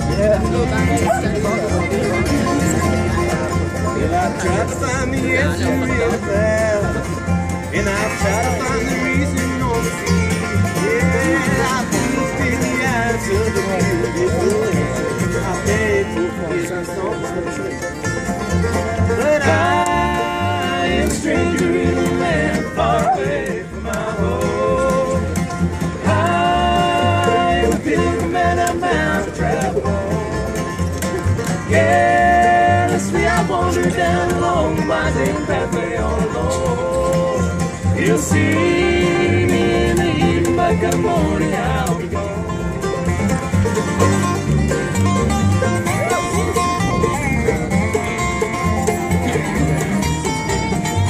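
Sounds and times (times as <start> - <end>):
bass beat: 0.0 - 16.4, 18.0 - 51.0
banjo picking: 0.0 - 51.0
guitar picking: 0.0 - 51.0.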